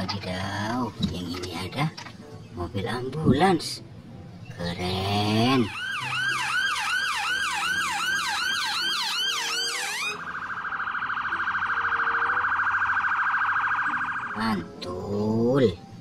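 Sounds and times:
ambulance siren: 5.4s - 14.8s.

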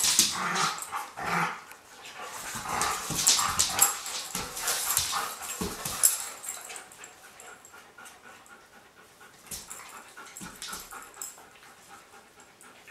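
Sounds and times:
claws clicking on hardwood floor: 0.0s - 1.1s, 2.3s - 7.0s
dogs scuffling: 0.0s - 7.4s.

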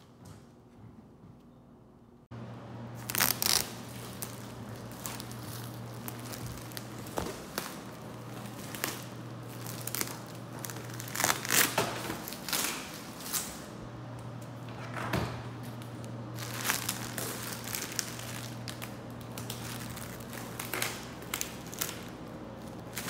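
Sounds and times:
steady low hum: 0.0s - 23.0s
plastic wrapping crinkling: 3.0s - 13.6s, 16.3s - 23.0s.

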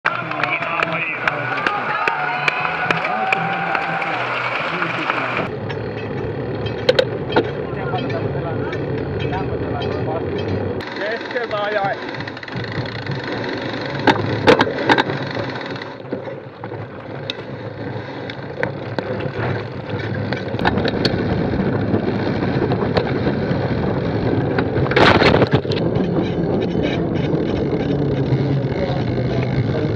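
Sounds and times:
bike tyre and frame rattling: 0.0s - 29.9s
sharp clicks and knocks: 5.5s - 29.9s
wind on microphone: 16.8s - 29.9s.

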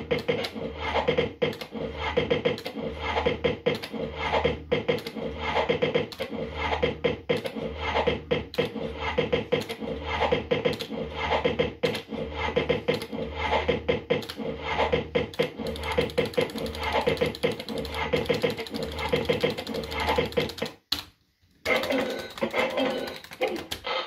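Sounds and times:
reels stopping with clacks: 15.3s - 20.8s.

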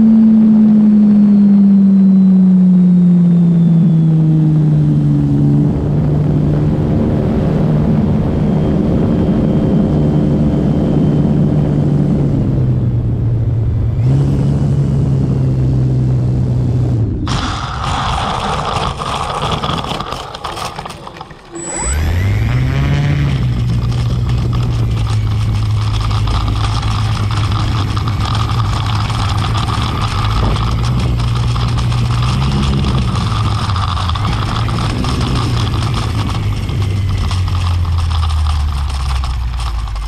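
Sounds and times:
model plane motor and propeller: 17.3s - 40.0s.

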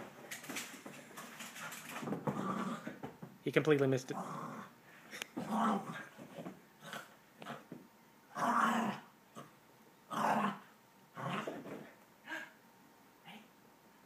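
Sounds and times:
dog growling in play: 1.8s - 3.0s, 4.1s - 6.2s, 6.8s - 7.7s, 8.3s - 12.5s.

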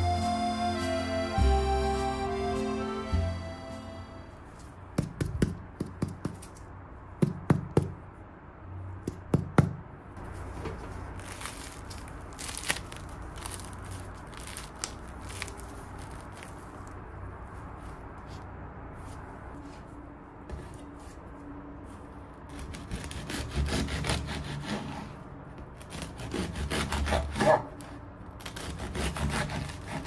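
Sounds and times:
bread crust crackling: 10.3s - 17.1s.

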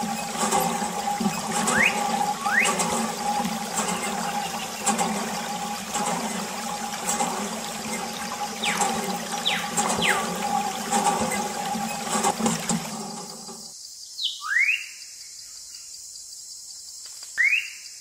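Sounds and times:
steady hum: 0.0s - 13.7s
water trickling into tank: 0.0s - 13.7s.

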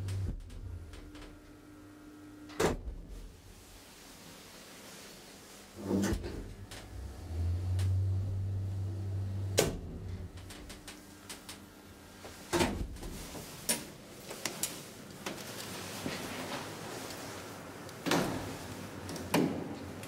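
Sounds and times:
elevator humming: 5.8s - 12.3s.

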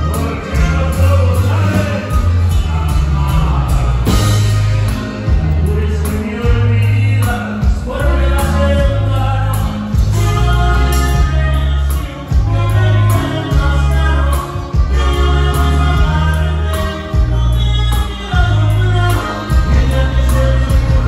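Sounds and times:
saxophone: 0.0s - 6.0s, 7.8s - 21.0s
band playing through loudspeakers: 0.0s - 21.0s
button accordion: 0.0s - 21.0s
person singing: 0.0s - 21.0s.

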